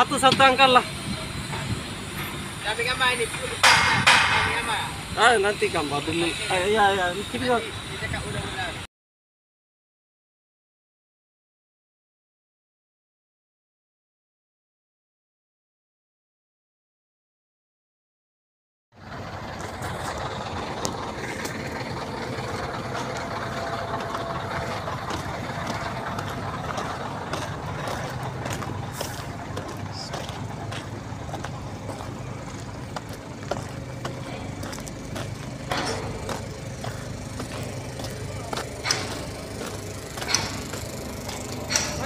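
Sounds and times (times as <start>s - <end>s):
diesel engine humming: 0.0s - 8.9s, 19.0s - 42.0s.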